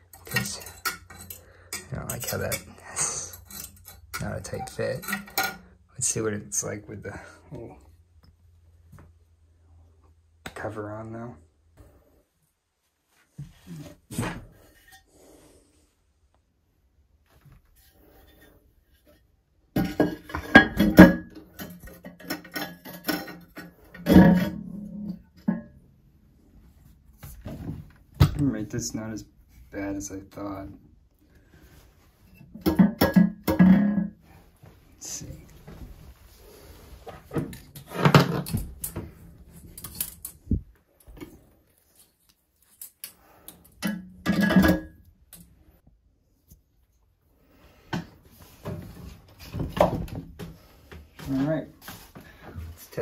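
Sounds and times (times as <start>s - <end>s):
metal hose clattering: 0.0s - 6.7s, 17.7s - 25.7s, 35.1s - 45.6s.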